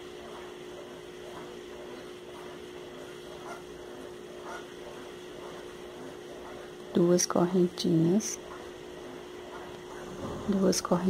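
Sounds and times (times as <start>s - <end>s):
steady mid-pitched hum: 0.0s - 11.0s.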